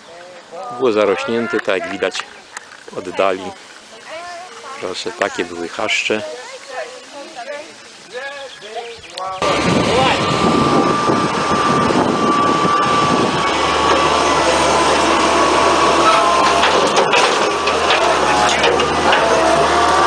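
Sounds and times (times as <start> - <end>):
loader engine running: 9.4 - 20.0
machine driving down steel ramps: 9.4 - 20.0.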